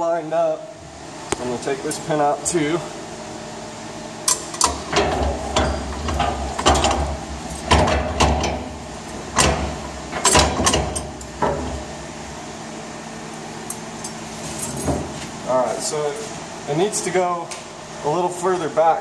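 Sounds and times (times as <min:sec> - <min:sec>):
steel parts clinking and clanking: 0:04.3 - 0:11.8.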